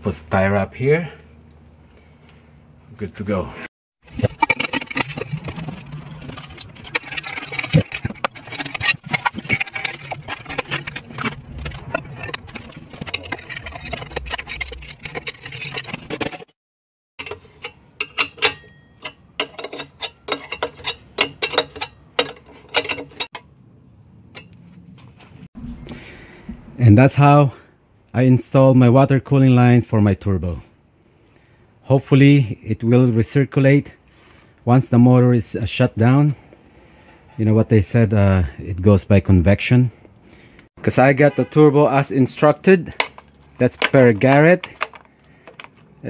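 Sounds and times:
metal parts clinking and knocking: 0:04.1 - 0:16.5, 0:17.2 - 0:23.5, 0:42.9 - 0:45.9.

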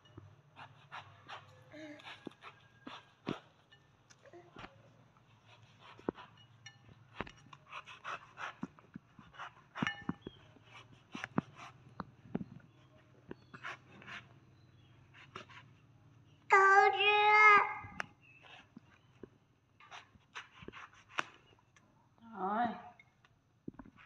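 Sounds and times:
knife cutting fruit rind: 0:00.0 - 0:03.8, 0:04.6 - 0:15.9, 0:18.0 - 0:19.2, 0:19.8 - 0:21.8.

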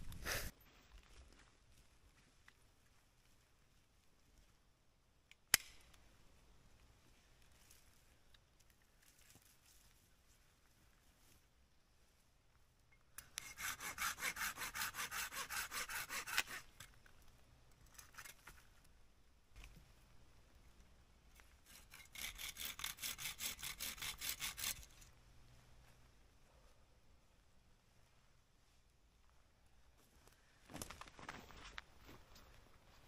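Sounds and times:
hand saw cutting wood: 0:13.2 - 0:16.8, 0:21.6 - 0:25.0.

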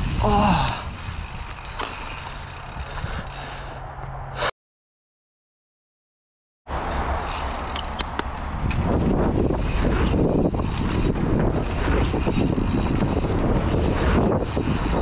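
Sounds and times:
wind rumble on microphone: 0:00.0 - 0:03.5, 0:06.7 - 0:15.0
tyres on loose dirt: 0:00.0 - 0:03.7
bike rattling and clicking: 0:00.0 - 0:03.8, 0:07.2 - 0:15.0.

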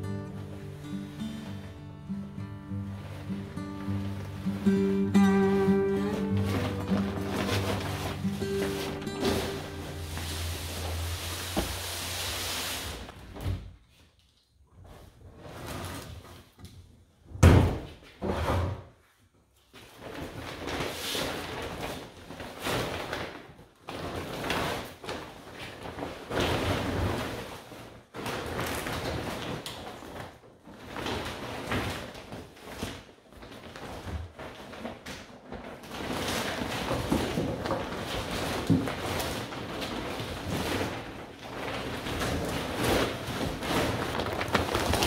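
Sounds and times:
dry weeds rustling and crackling: 0:02.8 - 0:13.2, 0:37.6 - 0:45.0.

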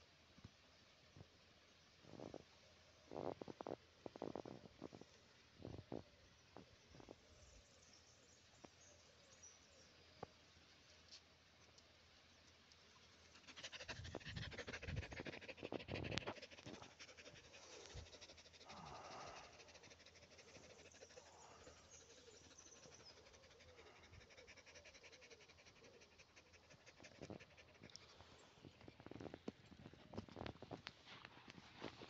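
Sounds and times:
dog panting: 0:13.3 - 0:28.1.

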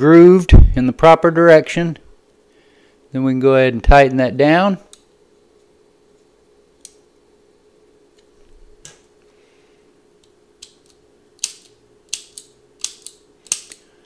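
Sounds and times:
lighter clicking and snapping: 0:11.4 - 0:13.8.

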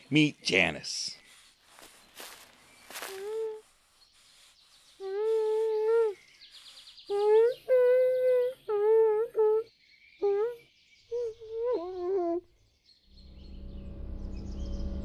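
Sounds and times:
muffled humming: 0:13.2 - 0:15.0.

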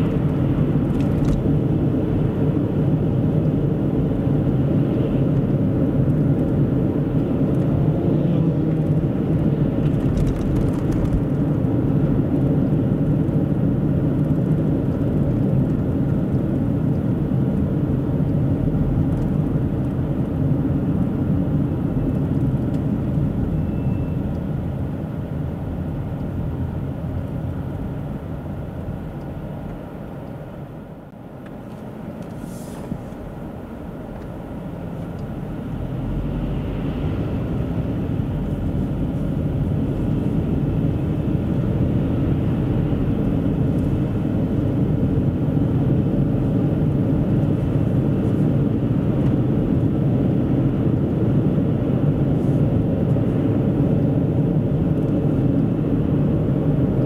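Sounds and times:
car road and engine rumble: 0:00.0 - 0:57.0.

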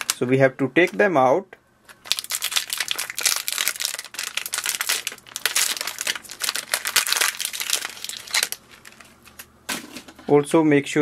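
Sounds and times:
foil packet tearing and crinkling: 0:00.0 - 0:00.2, 0:02.0 - 0:09.4.

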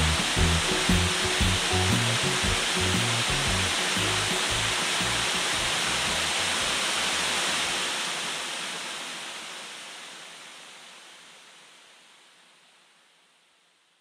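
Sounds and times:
low bass notes: 0:00.0 - 0:07.3
water rushing: 0:00.0 - 0:11.7.

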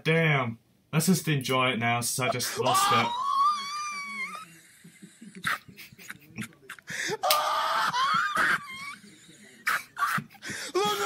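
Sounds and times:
man laughing: 0:02.3 - 0:07.3, 0:08.0 - 0:11.0.

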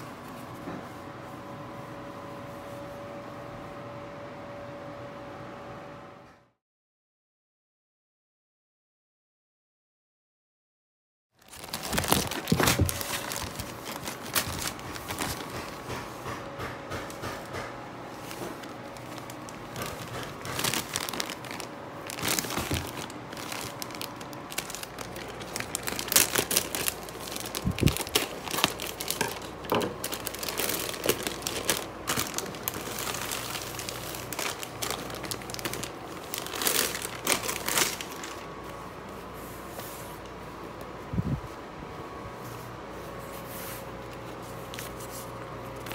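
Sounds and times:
plastic wrap crinkling and tearing: 0:11.4 - 0:16.0, 0:17.0 - 0:38.7, 0:44.6 - 0:45.9.

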